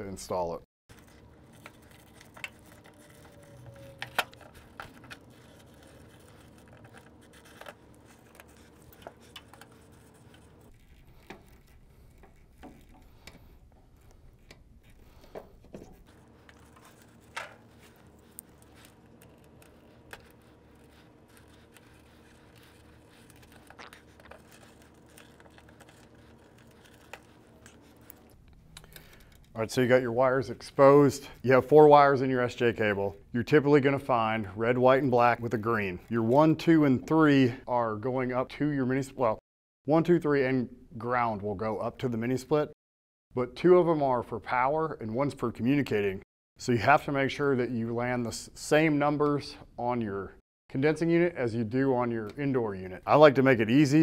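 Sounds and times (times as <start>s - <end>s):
knife scraping insulation: 0.9s - 28.3s.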